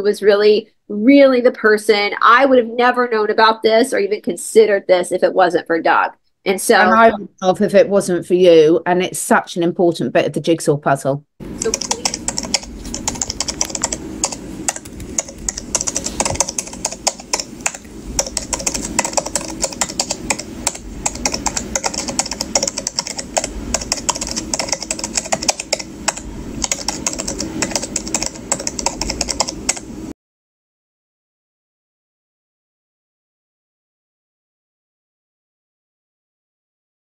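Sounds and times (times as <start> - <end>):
keyboard typing clicks: 11.6 - 29.9.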